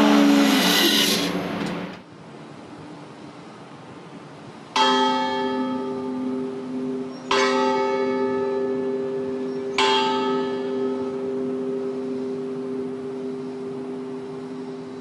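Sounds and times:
steamboat bell ringing: 4.8s - 15.0s.

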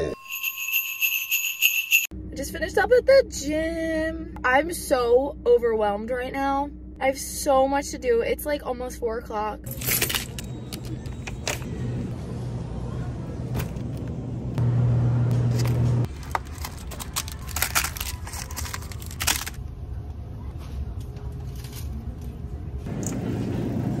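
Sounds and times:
low hum: 2.1s - 24.0s
boxes rustling and knocking: 15.5s - 19.6s.

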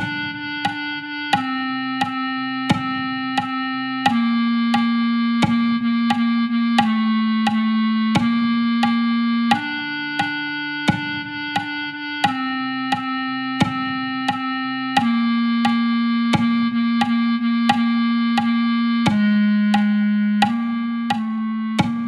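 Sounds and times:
clarinet sustained notes: 0.0s - 22.0s
metronome clicks: 0.0s - 22.0s.

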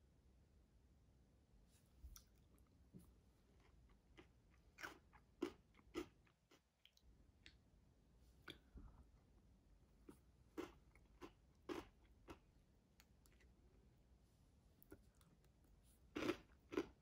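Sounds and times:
granola crunching: 14.8s - 17.0s.

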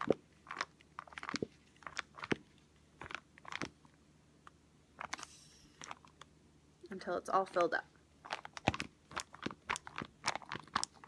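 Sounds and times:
plastic pouch crinkling: 0.0s - 4.0s, 5.0s - 6.3s, 7.5s - 11.0s.

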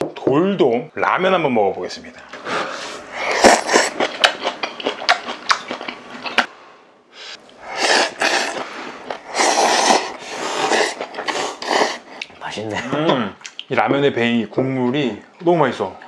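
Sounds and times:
people slurping noodles: 2.3s - 4.4s, 7.2s - 12.3s.

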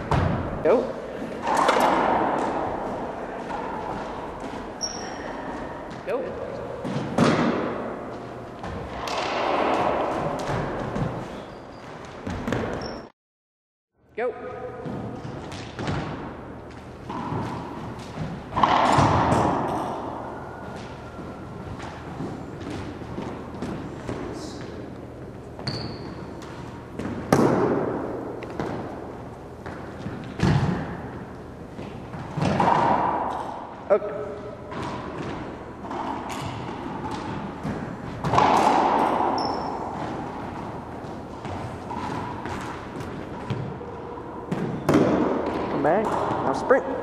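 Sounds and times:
loud echoing thuds: 0.0s - 0.6s, 1.4s - 11.4s, 14.6s - 24.8s, 26.9s - 33.9s, 34.6s - 46.6s
shoes squeaking on hardwood: 25.6s - 26.4s.

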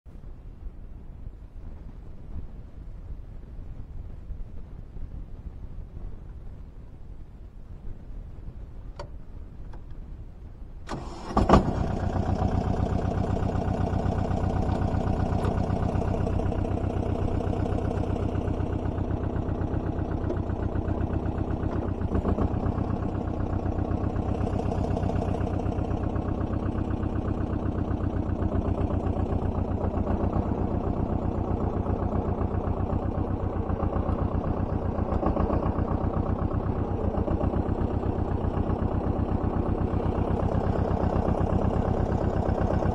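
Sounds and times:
tractor engine starting and running: 8.8s - 42.9s.

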